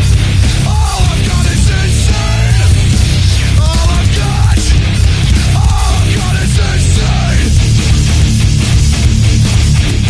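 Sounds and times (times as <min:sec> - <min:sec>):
heavy rock music: 0:00.0 - 0:10.0.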